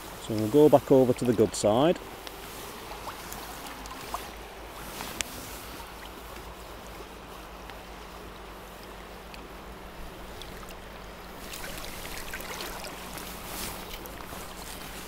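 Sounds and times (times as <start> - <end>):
river rushing over stones: 9.6 - 15.0.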